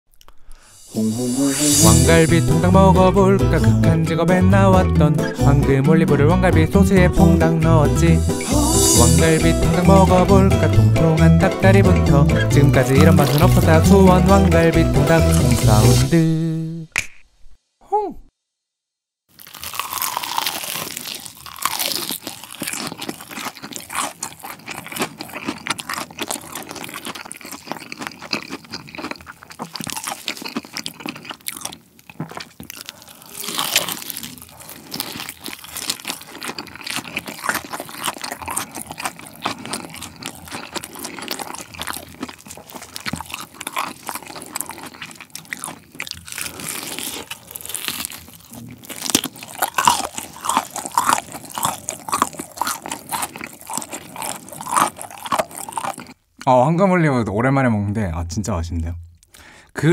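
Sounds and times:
crunching and chewing fried chicken: 0:08.4 - 0:16.0, 0:19.3 - 0:56.5.

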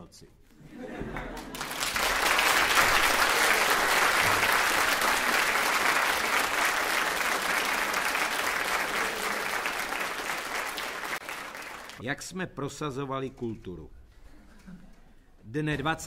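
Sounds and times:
audience applauding: 0:01.1 - 0:12.0.

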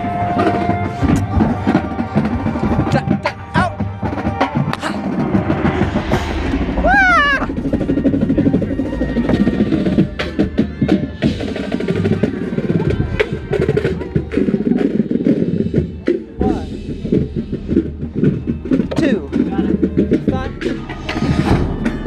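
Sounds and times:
horn line playing: 0:00.0 - 0:05.9.

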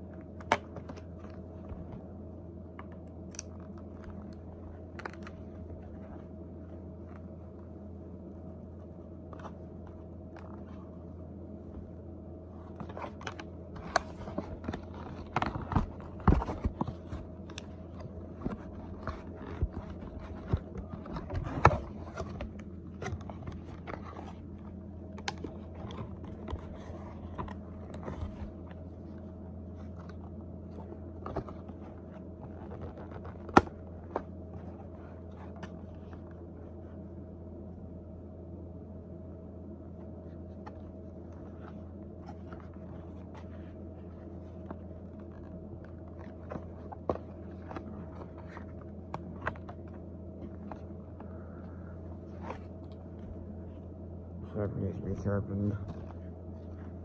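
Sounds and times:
steady low hum: 0:00.0 - 0:57.0
packaging crinkling and scraping: 0:12.7 - 0:36.4, 0:40.4 - 0:53.8.

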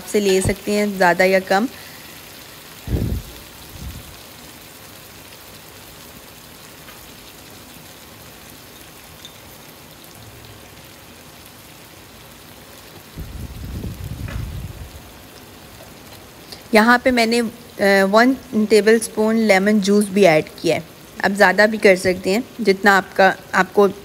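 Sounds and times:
meat sizzling in oil: 0:00.0 - 0:16.9
low rumbling: 0:02.8 - 0:04.3, 0:13.2 - 0:15.2.

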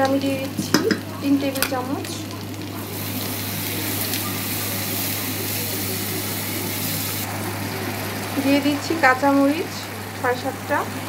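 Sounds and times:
paste sizzling in hot oil: 0:00.6 - 0:09.1.

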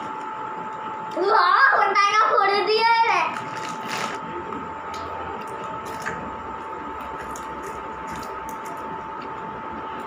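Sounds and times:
steady high hum: 0:00.0 - 0:10.0
snack packet crinkling: 0:03.3 - 0:04.2.

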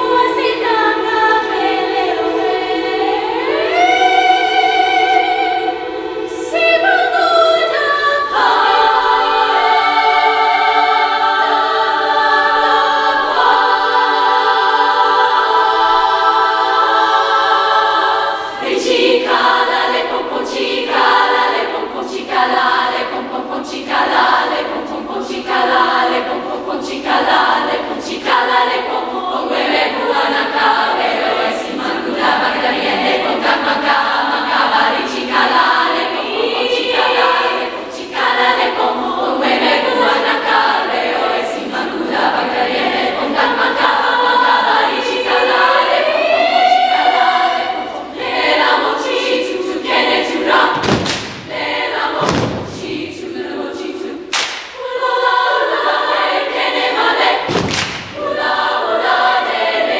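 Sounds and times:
girls' choir singing: 0:00.0 - 0:59.9
loud thumps: 0:50.7 - 0:53.2, 0:57.4 - 0:58.2.

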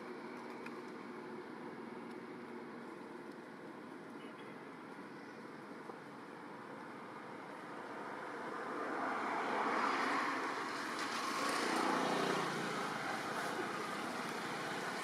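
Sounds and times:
passing motor vehicle engine: 0:08.5 - 0:15.0.

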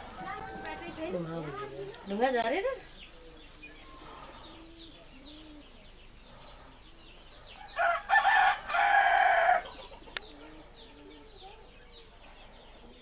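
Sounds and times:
doves cooing: 0:00.0 - 0:13.0
small birds chirping: 0:00.0 - 0:13.0
rooster crowing: 0:00.2 - 0:01.2, 0:07.6 - 0:09.9.

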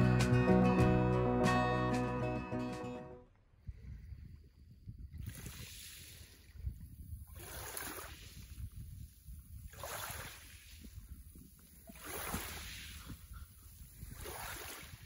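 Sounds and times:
waves lapping on pebble beach: 0:07.3 - 0:08.7, 0:09.6 - 0:11.0, 0:11.8 - 0:13.1, 0:14.0 - 0:15.0.

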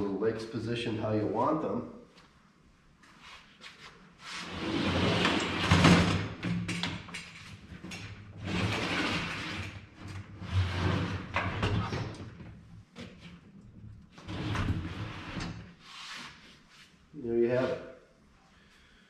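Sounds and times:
scraping and rattling of metal frame: 0:04.4 - 0:15.8.

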